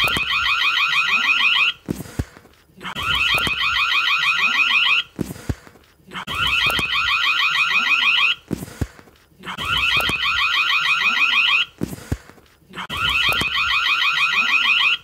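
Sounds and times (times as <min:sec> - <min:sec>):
electronic doorbell trill: 0:12.9 - 0:15.0.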